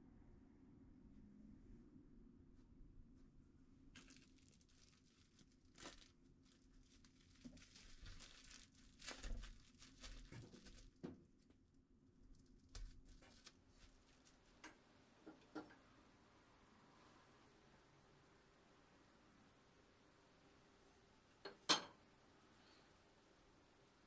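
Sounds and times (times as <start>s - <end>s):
cling film crinkling: 3.9s - 11.6s, 12.2s - 14.8s.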